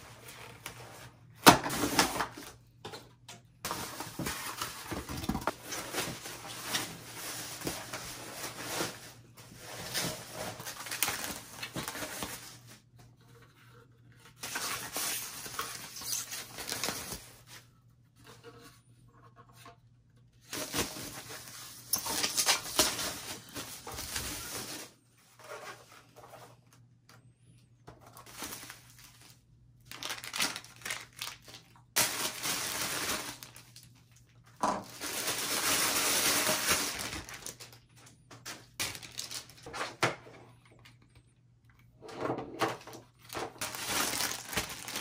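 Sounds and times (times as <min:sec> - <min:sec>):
foam and plastic rustling: 0:03.6 - 0:13.0, 0:14.3 - 0:17.7, 0:20.4 - 0:26.6, 0:28.0 - 0:37.8, 0:38.4 - 0:40.0, 0:42.6 - 0:45.0.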